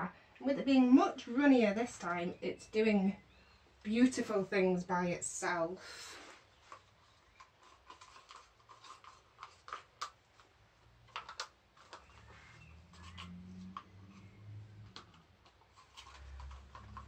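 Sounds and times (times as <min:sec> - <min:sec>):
hands handling plastic cups: 0:06.2 - 0:17.0.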